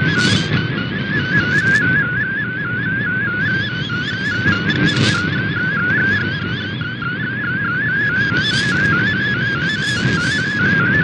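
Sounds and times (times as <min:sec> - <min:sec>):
shortwave radio hiss: 0:00.0 - 0:00.6, 0:01.4 - 0:01.8, 0:04.3 - 0:05.3, 0:08.3 - 0:10.6
wobbling digital whistling tone: 0:00.0 - 0:11.0.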